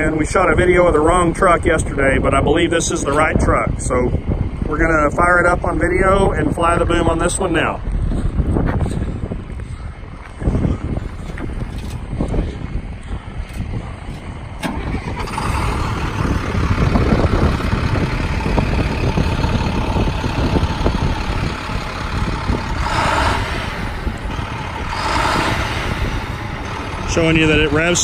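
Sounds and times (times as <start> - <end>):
faint engine whine: 0.0 - 28.0
diesel engine starting and idling: 11.4 - 28.0.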